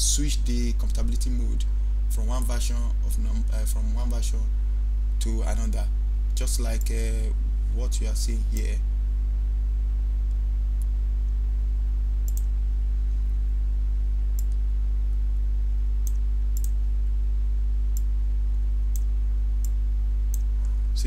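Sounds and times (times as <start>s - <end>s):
low electrical hum: 0.0s - 21.0s
computer mouse clicks: 12.2s - 12.5s, 14.4s - 14.6s, 16.0s - 16.8s.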